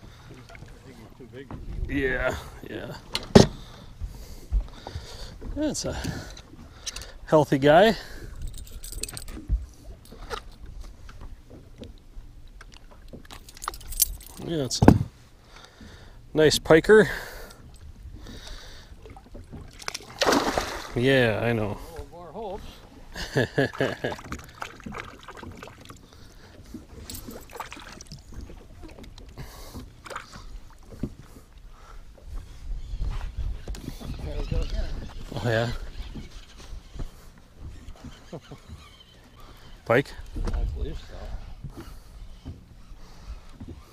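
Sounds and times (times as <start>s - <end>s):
water sloshing and splashing: 0.0s - 16.2s, 17.1s - 43.9s
light knocks on hull: 3.1s - 3.7s, 14.7s - 15.1s.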